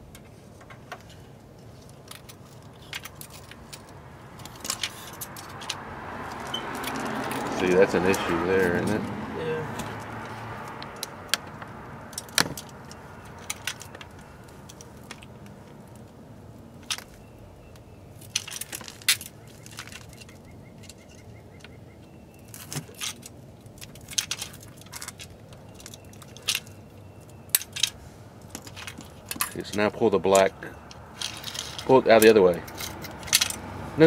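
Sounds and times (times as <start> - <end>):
low outdoor background: 0.0 - 34.0
metal parts clicking and clinking: 1.7 - 5.8, 10.8 - 16.0, 18.2 - 21.3, 22.5 - 33.6.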